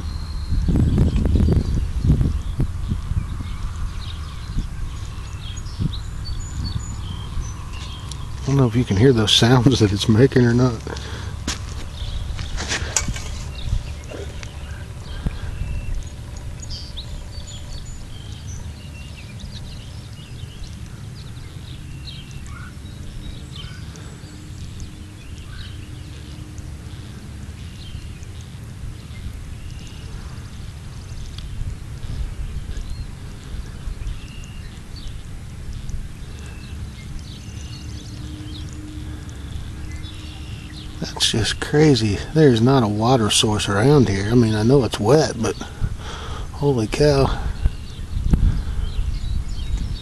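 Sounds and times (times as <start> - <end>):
low rumble: 0.0 - 50.0
faint clicks: 10.8 - 28.6, 29.6 - 31.6, 32.7 - 40.6.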